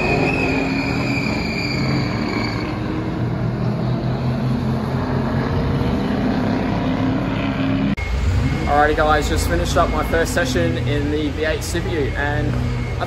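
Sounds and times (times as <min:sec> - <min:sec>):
engine droning: 0:00.0 - 0:13.0
high whine: 0:00.0 - 0:13.0.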